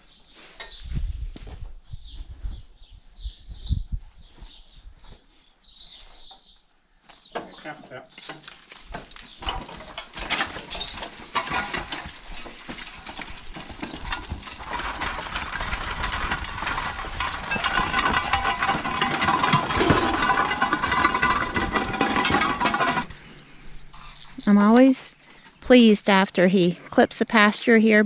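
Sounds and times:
mower clattering and rattling: 7.4 - 23.6
steel wheels rolling over gravel: 8.1 - 24.5.

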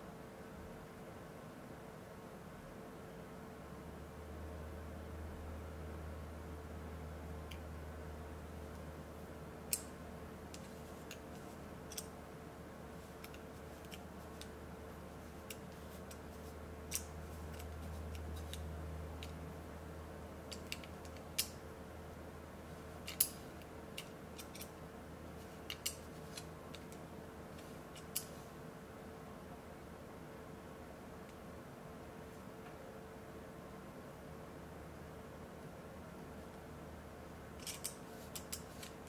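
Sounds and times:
steady low hum: 0.0 - 39.0
metallic clicks of caliper: 16.9 - 18.6, 23.1 - 23.4, 25.7 - 27.0, 37.6 - 39.0.

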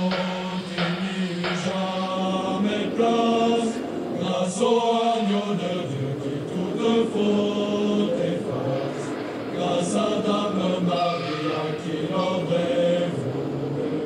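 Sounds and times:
low choral chanting: 0.0 - 14.0.

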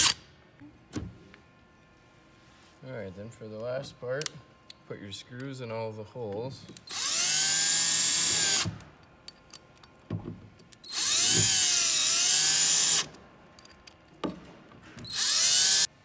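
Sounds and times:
cordless drill driving screws: 6.9 - 8.8, 10.8 - 13.1, 15.0 - 15.9.

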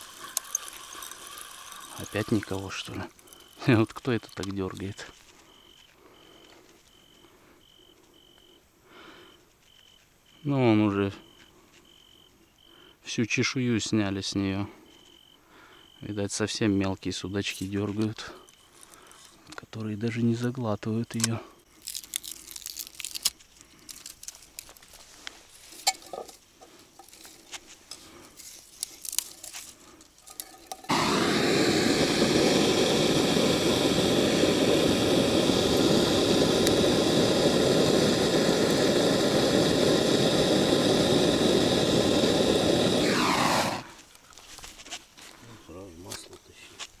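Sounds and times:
motor-driven machine running: 30.9 - 43.9.

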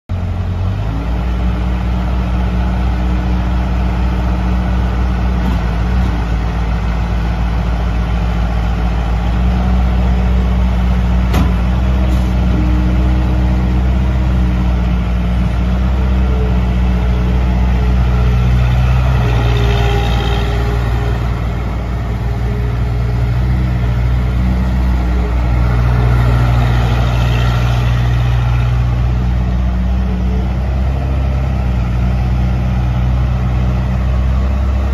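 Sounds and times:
diesel engine running: 0.1 - 34.9.

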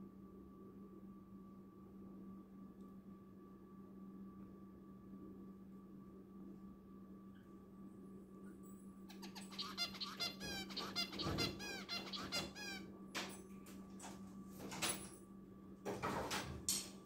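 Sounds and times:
finch chirping: 9.1 - 12.8
harsh scratchy bird notes: 9.1 - 12.8.

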